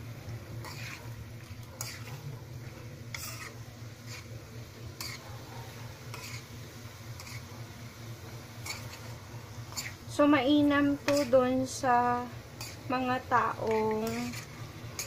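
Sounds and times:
steady low hum: 0.0s - 15.0s
spatula scraping metal frying pan: 0.6s - 2.3s, 3.1s - 4.4s, 5.0s - 5.3s, 6.1s - 6.5s, 7.2s - 7.5s, 8.6s - 10.0s, 10.8s - 11.9s, 12.5s - 15.0s.

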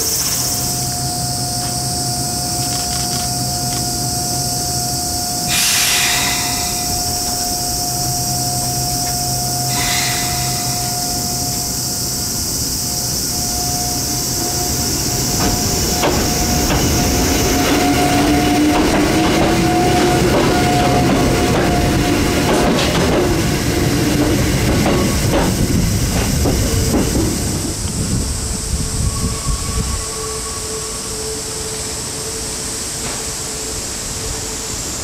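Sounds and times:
electric train humming: 0.0s - 35.0s
train motor whine: 0.0s - 35.0s
air hiss bursts: 5.4s - 8.9s, 9.5s - 13.3s.

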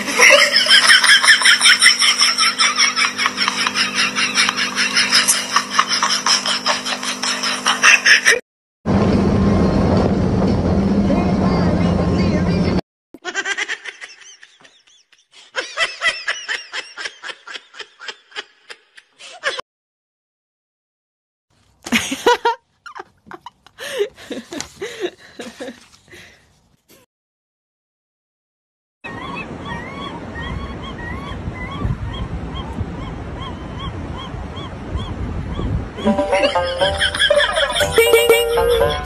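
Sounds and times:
person giggling: 0.0s - 8.4s, 21.9s - 25.9s
gull calling: 29.1s - 38.0s
wind rumble on microphone: 30.3s - 36.0s.

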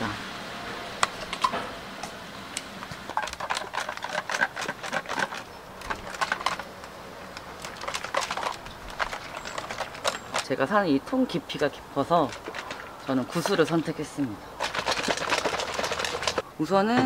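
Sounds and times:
ball rattling in a shaken can: 3.1s - 10.5s, 12.2s - 14.0s, 14.6s - 16.4s.

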